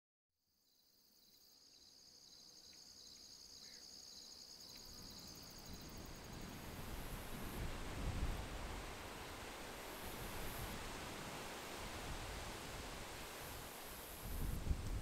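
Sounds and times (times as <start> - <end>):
insects trilling: 0.6 - 7.7.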